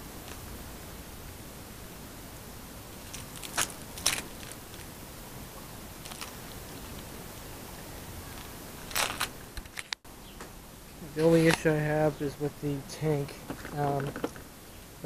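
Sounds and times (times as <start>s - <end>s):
microphone hiss: 0.0s - 15.0s
short crunchy clicks: 3.0s - 4.9s, 8.3s - 10.0s.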